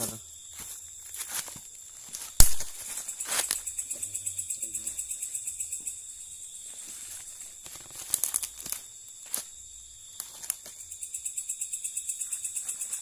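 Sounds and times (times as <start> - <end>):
leaves and twigs crackling underfoot: 0.0 - 4.3, 4.9 - 11.1, 12.2 - 13.0
night insects chorus: 0.0 - 13.0.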